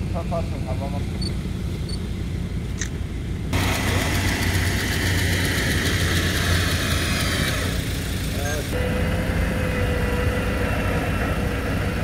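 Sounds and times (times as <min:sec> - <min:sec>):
car engine idling low hum: 0:00.0 - 0:12.0.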